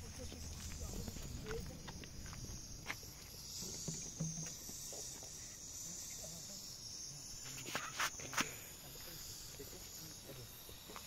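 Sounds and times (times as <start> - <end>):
footsteps on gravel: 0.0 - 3.4
steady high hiss: 0.0 - 11.0.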